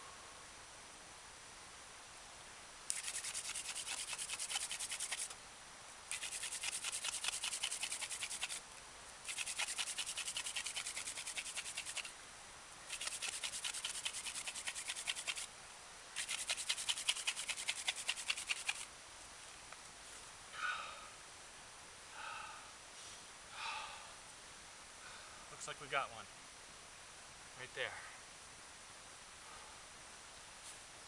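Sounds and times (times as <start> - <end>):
wooden hand drill grinding: 2.9 - 5.3, 6.1 - 8.6, 9.3 - 12.1, 12.9 - 15.5, 16.2 - 18.8.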